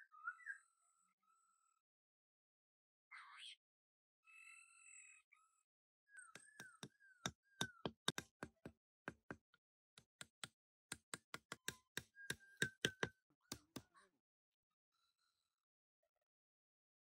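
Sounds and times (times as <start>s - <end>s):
sharp irregular knocks: 6.4s - 9.4s, 10.0s - 13.8s.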